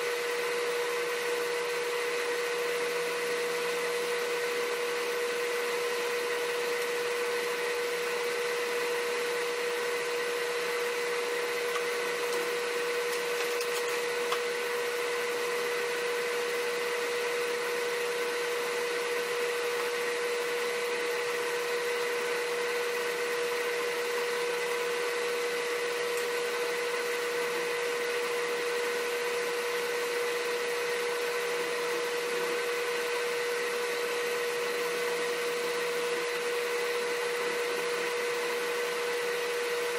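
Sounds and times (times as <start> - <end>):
motor humming with whine: 0.0 - 39.9.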